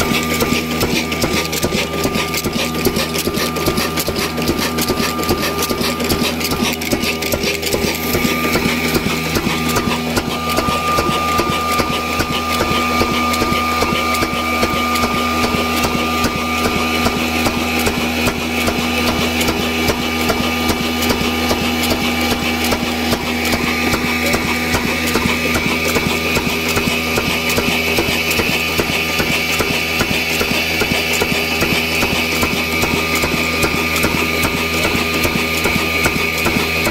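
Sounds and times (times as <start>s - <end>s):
diesel engine knocking: 0.0s - 36.9s
grinding mill running: 0.0s - 36.9s.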